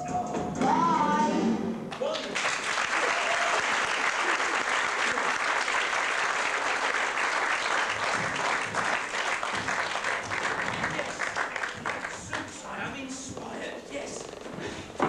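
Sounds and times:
audience applauding: 0:01.9 - 0:12.6.

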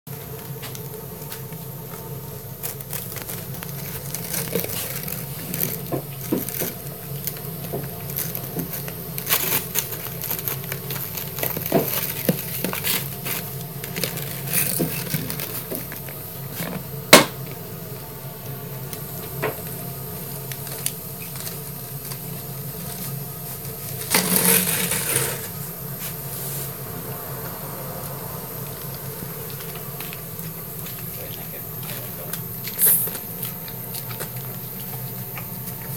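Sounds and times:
sharp plastic crack: 0:24.0 - 0:25.5.

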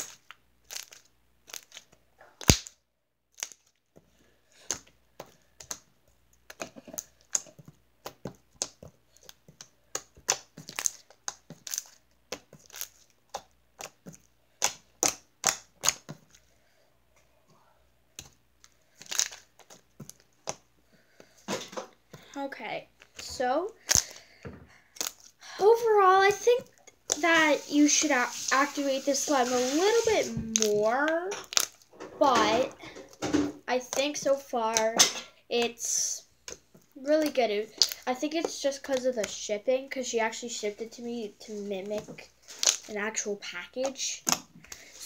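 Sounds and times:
slime clicking and popping: 0:02.4 - 0:02.8, 0:06.4 - 0:16.2, 0:30.5 - 0:31.8, 0:36.5 - 0:38.0.

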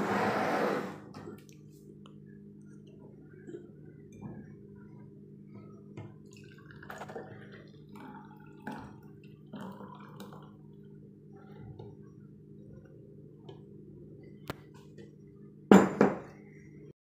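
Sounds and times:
steady low hum: 0:00.0 - 0:17.0
thick liquid pouring into glass: 0:06.2 - 0:10.6.

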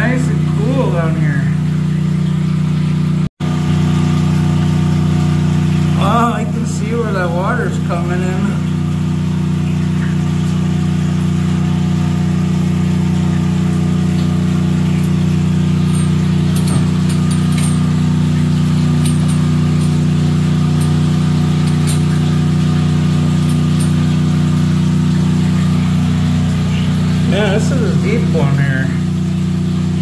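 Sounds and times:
engine humming: 0:00.0 - 0:30.0.

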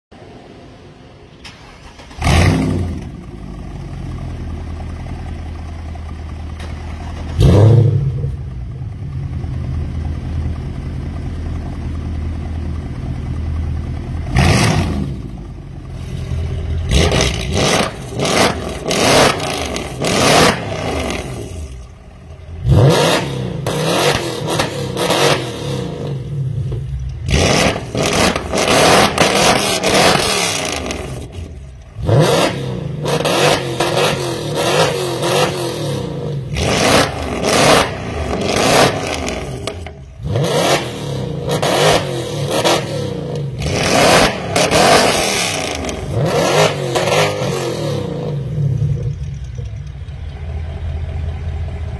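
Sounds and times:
car engines idling: 0:00.1 - 0:51.9
car engines revving: 0:00.2 - 0:51.9
car engines starting: 0:00.2 - 0:51.9.

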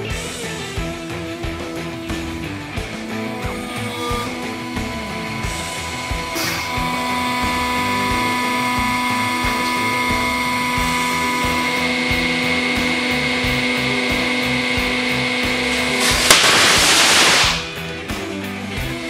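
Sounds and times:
hydraulic pump whining: 0:00.0 - 0:19.0
firecrackers crackling: 0:10.8 - 0:18.5
sharp bang: 0:15.4 - 0:18.4.

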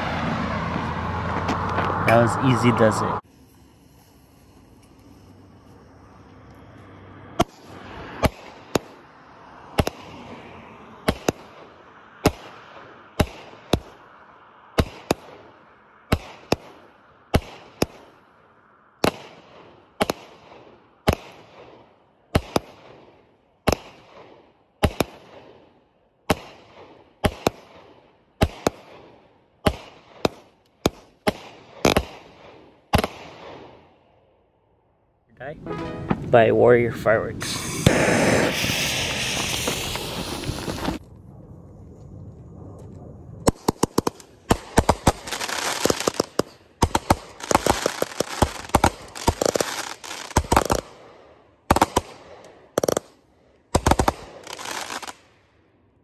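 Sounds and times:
firework hiss: 0:03.2 - 0:05.4, 0:37.4 - 0:41.0, 0:43.6 - 0:50.8, 0:53.8 - 0:55.2
firework stars crackling: 0:03.2 - 0:06.4, 0:37.3 - 0:55.4
firework bangs: 0:11.0 - 0:14.0, 0:26.3 - 0:33.8, 0:37.4 - 0:41.0, 0:43.4 - 0:55.2.

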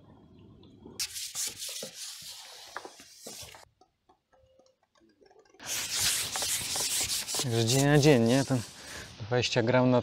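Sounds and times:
fishing pole scraping hiss: 0:05.6 - 0:09.2.

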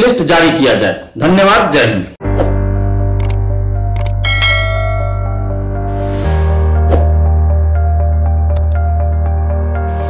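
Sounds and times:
low synth chord: 0:02.6 - 0:10.0
bell-like chime ringing: 0:04.2 - 0:05.6.

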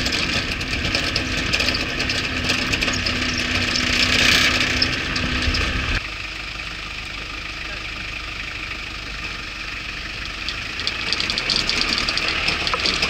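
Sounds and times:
truck bed clattering and rattling: 0:00.0 - 0:06.0, 0:10.2 - 0:13.0
vehicle engine and tyre noise: 0:00.0 - 0:13.0.

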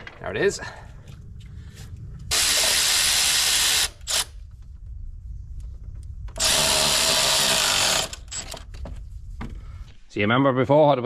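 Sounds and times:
electric ratchet running: 0:02.3 - 0:04.4, 0:06.4 - 0:08.4.

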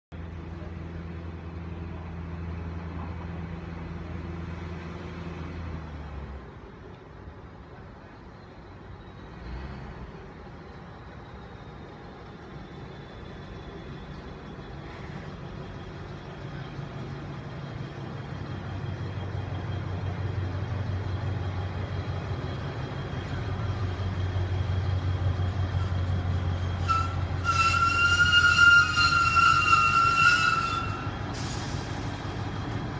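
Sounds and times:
train engine humming: 0:00.1 - 0:32.9
wheels squealing on rails: 0:08.2 - 0:32.9.

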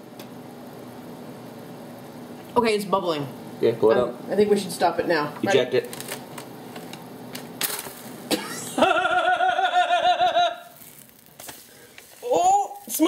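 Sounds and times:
person laughing: 0:08.4 - 0:10.7.

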